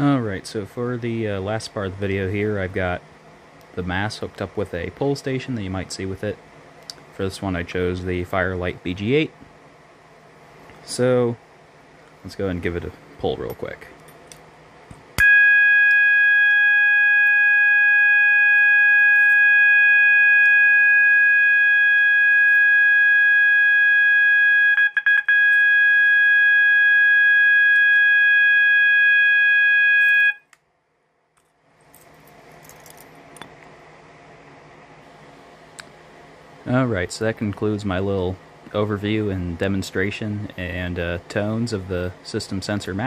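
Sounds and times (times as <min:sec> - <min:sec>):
alarm click: 0:15.2 - 0:22.7, 0:24.7 - 0:26.4, 0:27.3 - 0:28.8
loud continuous alarm tone: 0:15.2 - 0:30.5.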